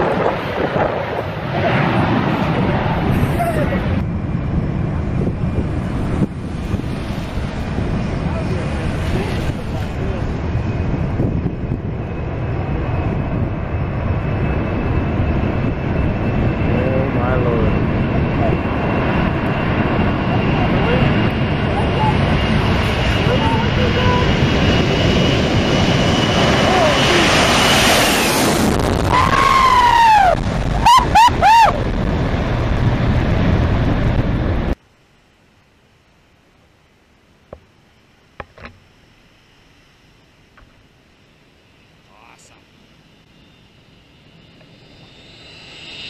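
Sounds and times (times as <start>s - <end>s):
jet engines roaring on takeoff: 0.0s - 34.8s, 38.4s - 46.0s
person whooping: 29.2s - 31.9s.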